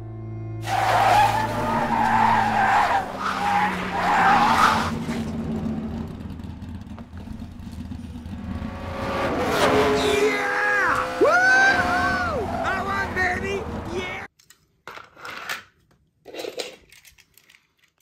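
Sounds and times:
tyres squealing: 0:00.6 - 0:05.1
rumble of vehicle noise: 0:01.4 - 0:10.1, 0:11.0 - 0:14.3.

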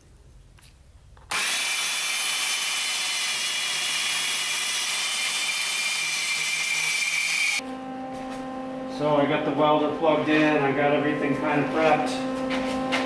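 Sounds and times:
band saw cutting metal tubing: 0:01.3 - 0:07.6.

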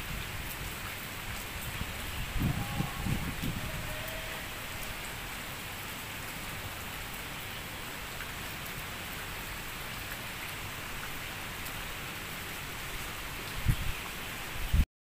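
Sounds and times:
steady rain falling: 0:00.0 - 0:14.9.

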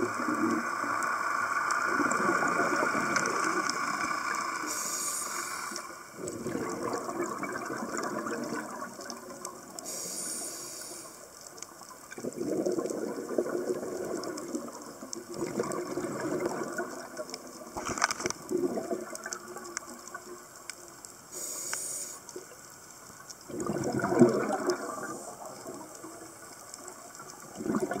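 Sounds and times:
bubbles rushing underwater: 0:01.8 - 0:04.5, 0:06.2 - 0:09.8, 0:12.1 - 0:20.4, 0:23.5 - 0:28.0
hissing regulator inhalations: 0:04.6 - 0:06.0, 0:09.8 - 0:11.3, 0:21.3 - 0:22.4.

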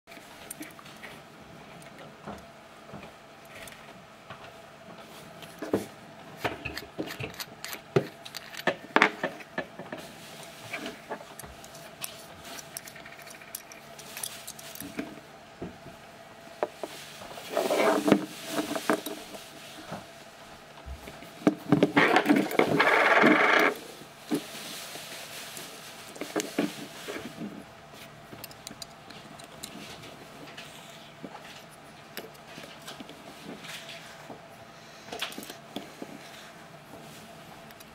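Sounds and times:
small metal parts clicking: 0:06.8 - 0:08.8, 0:11.3 - 0:15.0, 0:28.4 - 0:29.8.

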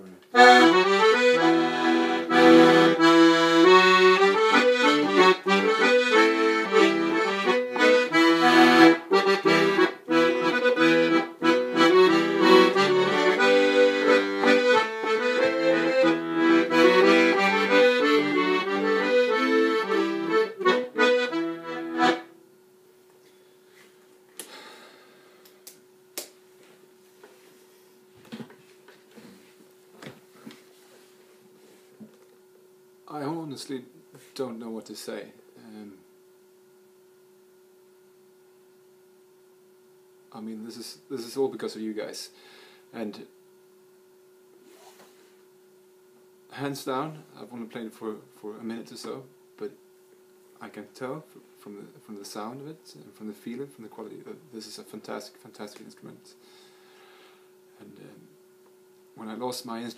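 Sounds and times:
button accordion tune: 0:00.3 - 0:22.4.

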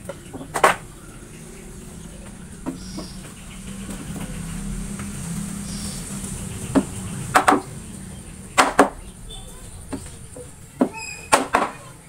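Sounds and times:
sharp wooden knocks: 0:00.0 - 0:00.9, 0:06.7 - 0:07.7, 0:08.6 - 0:09.0, 0:10.8 - 0:11.8
low steady hum: 0:00.0 - 0:12.0.

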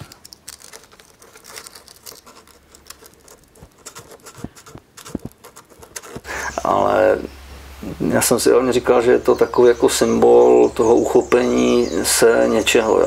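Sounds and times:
fingers scraping sculpture surface: 0:00.0 - 0:06.3.

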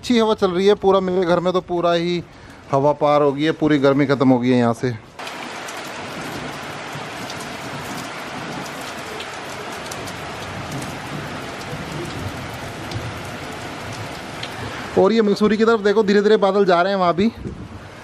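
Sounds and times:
raindrops ticking close by: 0:00.1 - 0:04.2, 0:05.2 - 0:17.7
heavy rain: 0:05.1 - 0:18.0.

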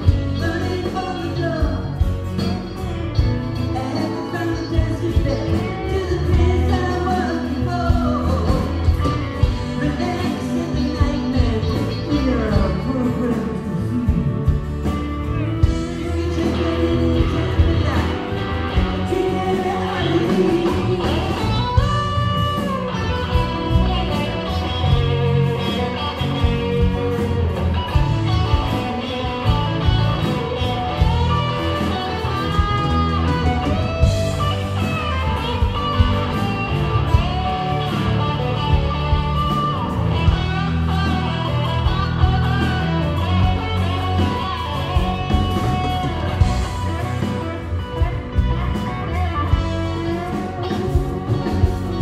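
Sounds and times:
bass: 0:00.0 - 0:52.0
blues-rock guitar lead: 0:00.0 - 0:52.0
steady drum beat: 0:12.5 - 0:52.0.

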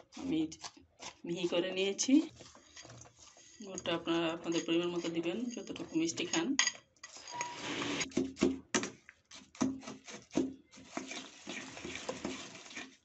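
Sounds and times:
metal spoon scraping a pan: 0:02.4 - 0:08.2, 0:10.7 - 0:13.0.

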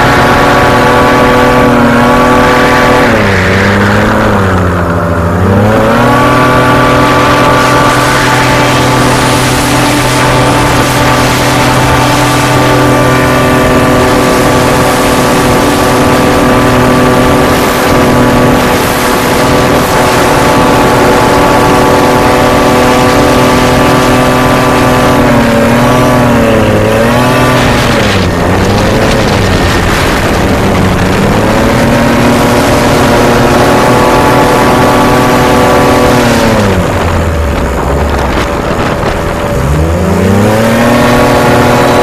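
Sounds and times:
hovercraft engine revving: 0:00.0 - 0:42.0.

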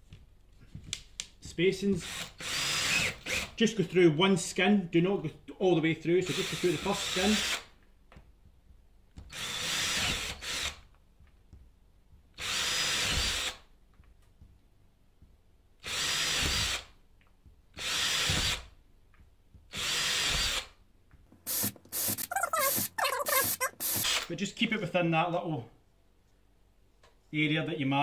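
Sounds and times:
power drill boring holes: 0:02.0 - 0:03.6, 0:06.2 - 0:07.7, 0:09.3 - 0:10.8, 0:12.4 - 0:13.6, 0:15.8 - 0:16.9, 0:17.8 - 0:18.7, 0:19.7 - 0:20.8, 0:21.5 - 0:24.3.

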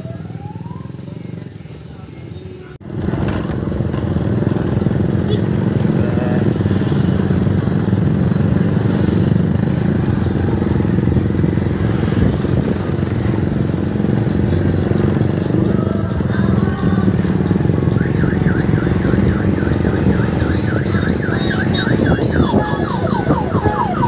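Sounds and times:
vehicle engines running: 0:00.0 - 0:24.0.

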